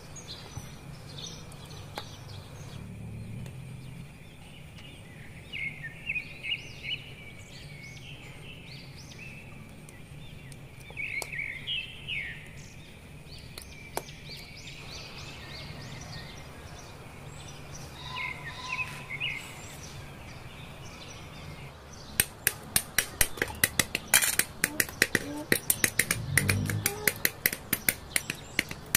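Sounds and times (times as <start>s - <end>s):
small birds chirping: 0.0s - 28.9s
fast run of sharp clicks: 22.2s - 28.9s.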